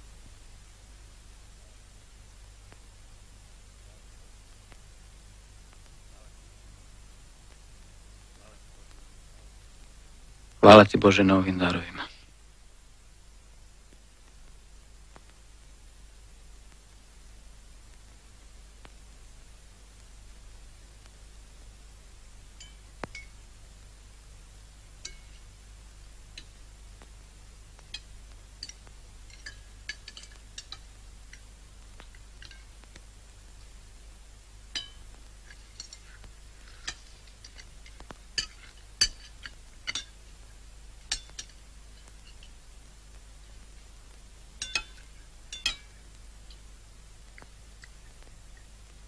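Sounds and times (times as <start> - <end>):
cutlery clinking on plates: 44.6 - 45.9.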